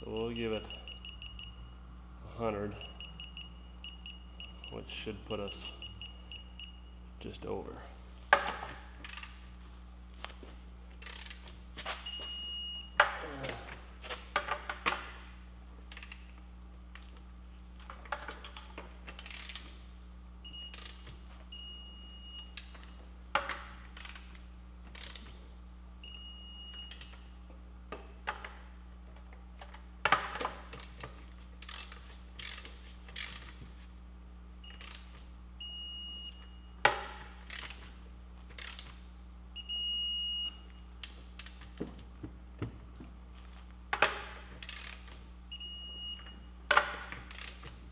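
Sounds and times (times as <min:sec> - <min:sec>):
steady low hum: 0:00.0 - 0:47.9
torque wrench ratcheting: 0:09.0 - 0:09.4, 0:11.0 - 0:11.5, 0:19.1 - 0:19.7, 0:23.9 - 0:25.3, 0:31.6 - 0:33.5, 0:34.7 - 0:35.1, 0:37.4 - 0:37.8, 0:38.5 - 0:39.0, 0:44.6 - 0:45.2, 0:47.2 - 0:47.7.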